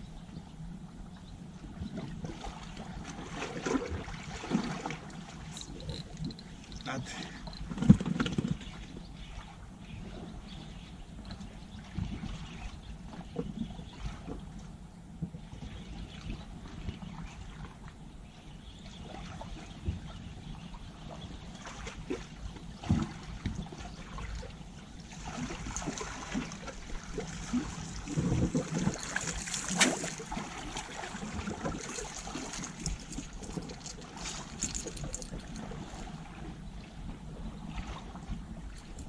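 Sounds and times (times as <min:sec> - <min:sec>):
seawater lapping against rocks: 0:01.9 - 0:10.8, 0:18.9 - 0:39.0
water splashing: 0:02.3 - 0:08.0, 0:25.0 - 0:36.4.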